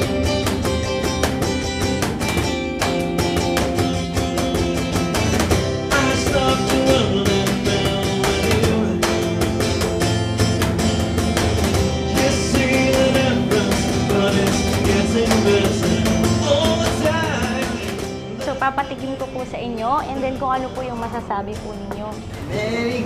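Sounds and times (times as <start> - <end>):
electric guitars: 0.0 - 23.0
steady drum beat: 0.0 - 23.0
person singing: 5.9 - 9.6, 12.1 - 19.2, 22.0 - 23.0.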